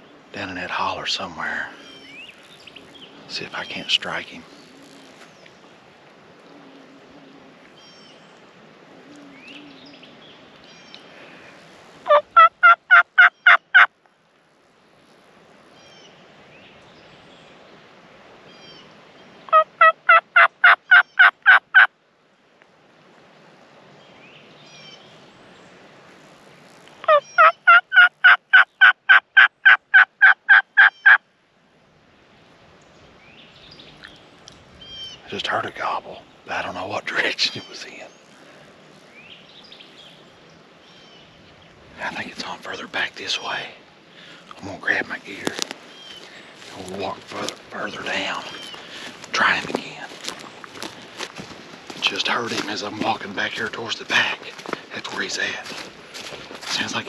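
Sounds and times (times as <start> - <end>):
faint songbird chirps: 0.0 - 11.5, 15.0 - 19.6, 22.3 - 27.8, 30.7 - 51.2
turkey call yelps: 12.1 - 13.9, 19.5 - 21.9, 27.0 - 31.2.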